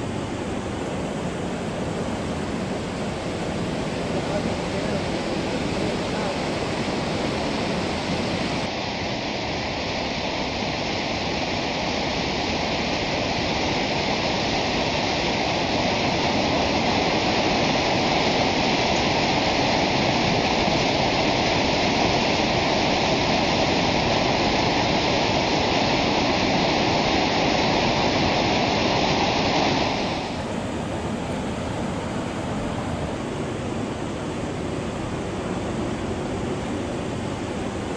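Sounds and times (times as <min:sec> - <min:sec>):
floodwater rushing: 0:00.0 - 0:37.9.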